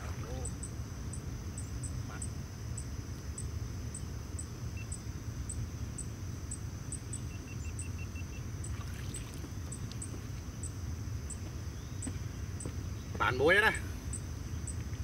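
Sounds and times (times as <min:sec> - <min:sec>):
low rumble of moving water: 0:00.0 - 0:01.6, 0:02.4 - 0:11.7
high insect hum: 0:00.0 - 0:15.0
insect chirping: 0:00.0 - 0:15.0.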